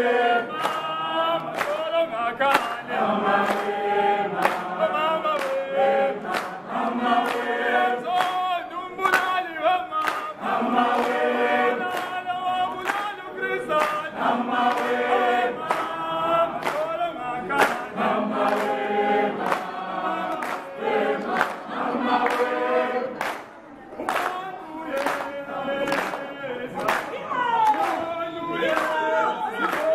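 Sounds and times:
group singing in unison: 0.0 - 29.9
hand claps: 0.5 - 29.9.

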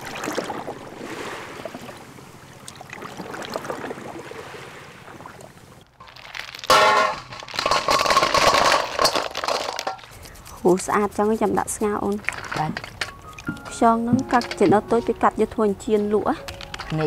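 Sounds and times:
shells clattering in metal bowl: 6.0 - 13.7, 14.3 - 15.2, 16.4 - 17.0
metal bowl ringing: 13.0 - 15.5.

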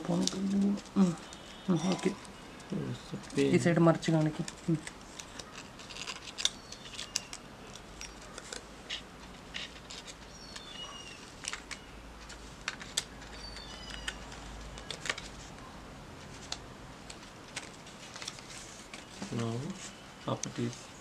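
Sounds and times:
paper rustling and crinkling: 0.0 - 15.6, 16.2 - 21.0.

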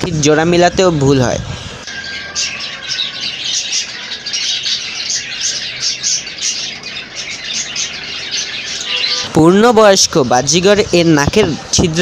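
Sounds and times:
budgerigars chirping and chattering: 0.8 - 12.0.

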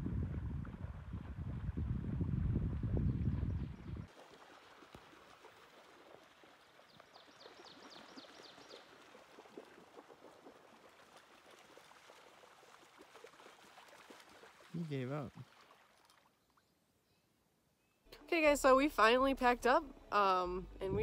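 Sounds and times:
low rumble: 0.0 - 4.1, 18.5 - 21.0
lake water lapping: 0.2 - 16.8.

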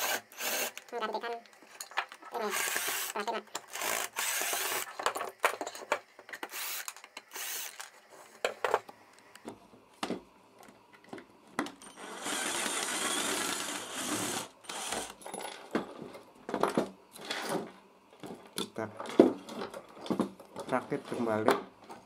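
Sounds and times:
cordless drill driving screw: 0.0 - 0.8, 2.4 - 4.9, 6.4 - 7.9, 12.0 - 15.2.

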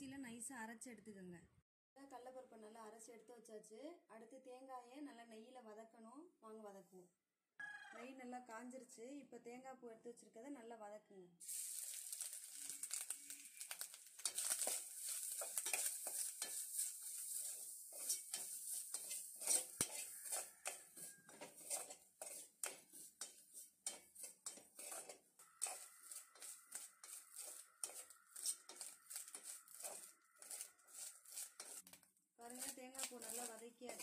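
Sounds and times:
light sizzle: 11.4 - 34.0
utensil scraping and knocking pan: 14.2 - 34.0.

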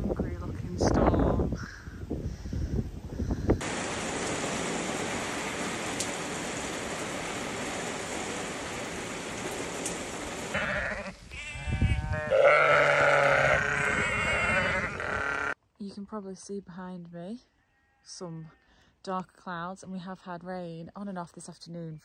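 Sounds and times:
heavy rain falling: 3.6 - 11.1
sheep and lambs bleating: 10.5 - 15.6, 17.6 - 18.6.

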